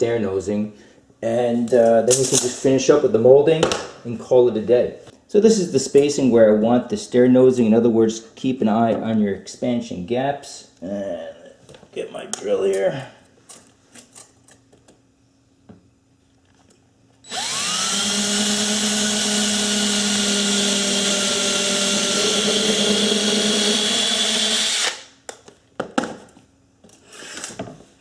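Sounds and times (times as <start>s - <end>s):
cordless drill boring into wood: 17.2s - 25.1s.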